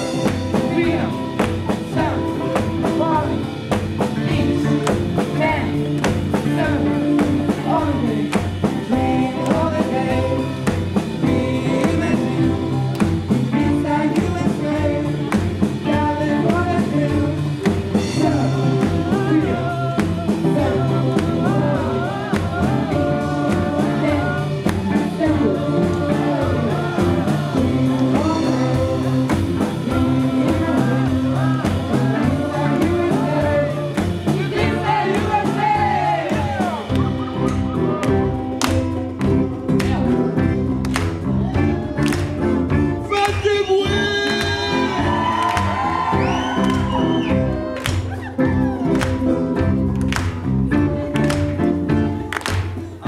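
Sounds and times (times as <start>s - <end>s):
band playing: 0.0s - 53.0s
voices singing together: 0.0s - 53.0s.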